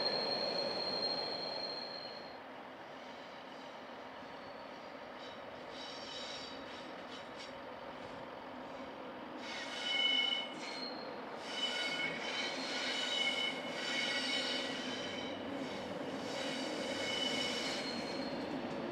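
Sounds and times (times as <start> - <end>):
high-pitched wheel flange squeal: 0.0 - 2.4, 9.4 - 18.4
train rumbling slowly: 0.0 - 18.9.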